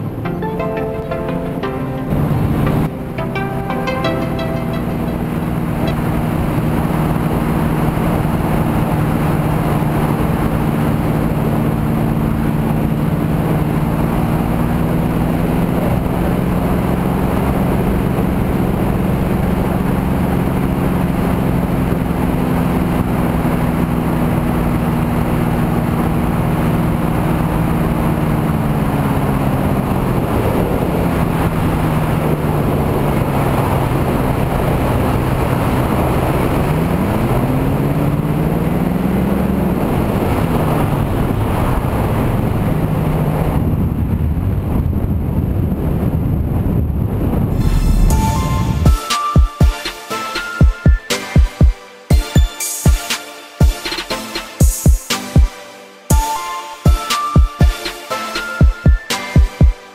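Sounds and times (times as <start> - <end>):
microlight engine in flight: 0.0 - 48.9
wind noise on microphone: 5.3 - 49.0.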